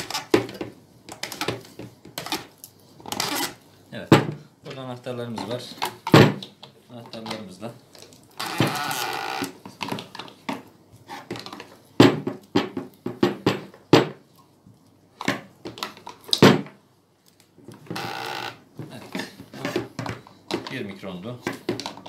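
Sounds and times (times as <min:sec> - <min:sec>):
sharp plastic clacks and knocks: 0:00.0 - 0:03.5, 0:18.8 - 0:22.0
plastic scraping on plastic: 0:00.0 - 0:03.6, 0:05.3 - 0:11.8.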